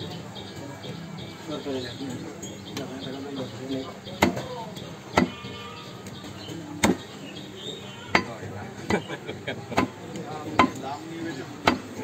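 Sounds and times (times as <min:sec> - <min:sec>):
cleaver chopping on wooden block: 0:04.2 - 0:04.5, 0:05.1 - 0:05.4, 0:06.8 - 0:07.1, 0:08.1 - 0:09.1, 0:09.8 - 0:10.8, 0:11.6 - 0:12.0.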